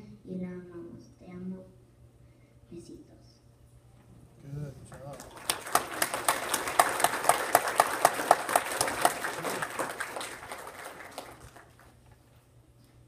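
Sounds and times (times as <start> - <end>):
audience applauding: 4.9 - 12.1.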